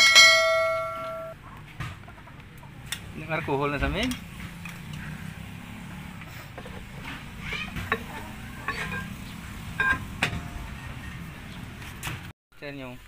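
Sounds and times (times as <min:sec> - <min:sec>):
sharp metal clinks: 0:00.0 - 0:01.4
metal brake drum scraping: 0:06.2 - 0:12.3.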